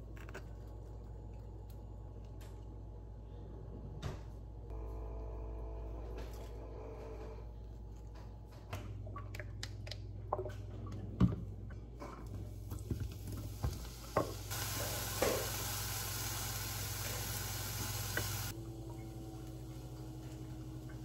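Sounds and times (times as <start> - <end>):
food sizzling in oil: 12.9 - 18.6.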